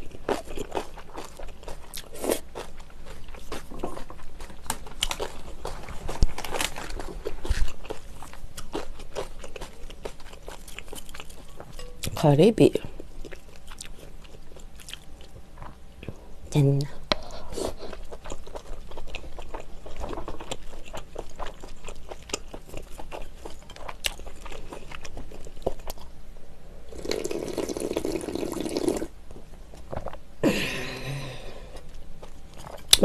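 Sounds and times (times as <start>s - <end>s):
wet chewing: 0.0s - 12.2s, 13.0s - 15.8s, 17.6s - 26.1s
slurping broth: 26.9s - 29.1s
voiced breath: 30.4s - 31.9s.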